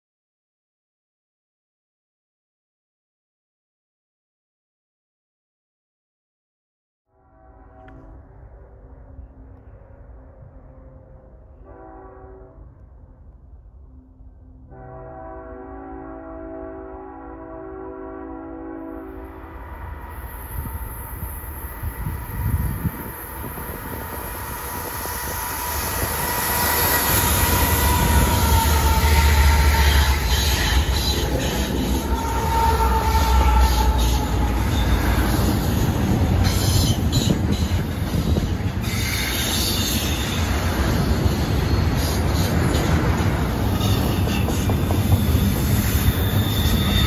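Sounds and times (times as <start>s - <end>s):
diesel locomotives rumbling: 7.3s - 47.0s
train wheels squealing: 20.0s - 47.0s.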